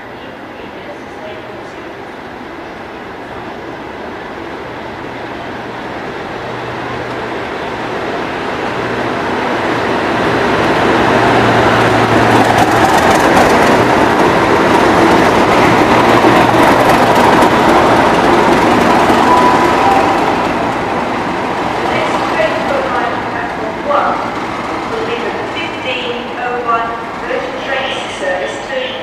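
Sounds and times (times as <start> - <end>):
diesel locomotive engines droning: 0.0 - 29.0
train wheels clicking over track: 11.4 - 19.3.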